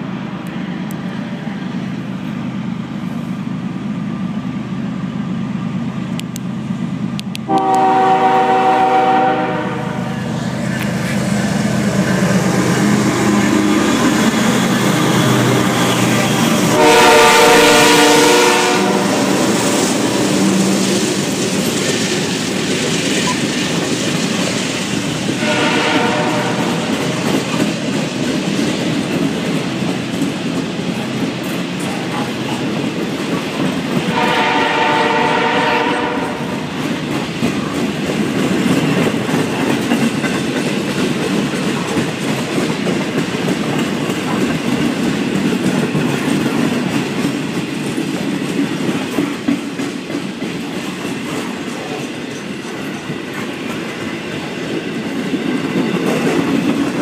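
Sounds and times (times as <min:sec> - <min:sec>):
freight train rumbling past: 0:00.0 - 0:57.0
train horn: 0:07.5 - 0:10.2, 0:16.4 - 0:19.6, 0:25.4 - 0:27.1, 0:34.1 - 0:36.7.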